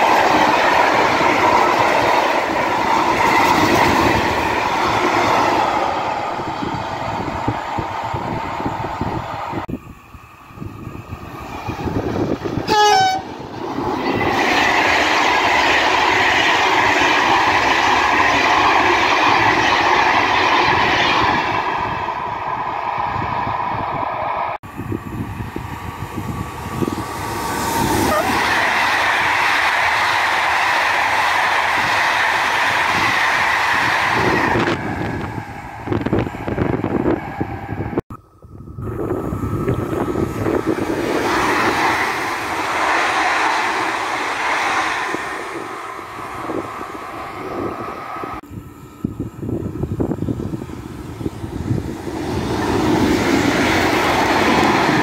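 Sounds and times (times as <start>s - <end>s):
train passing at speed: 0.0s - 55.0s
wheel and rail noise: 0.0s - 55.0s
train horn blast: 12.6s - 13.3s, 28.0s - 28.4s.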